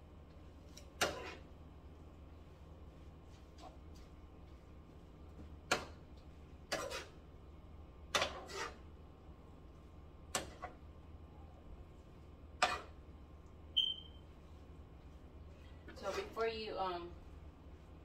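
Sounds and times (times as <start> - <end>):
utensils scraping a frying pan: 0.8 - 1.5, 6.7 - 7.2, 8.1 - 8.9, 12.6 - 13.0, 15.9 - 16.4.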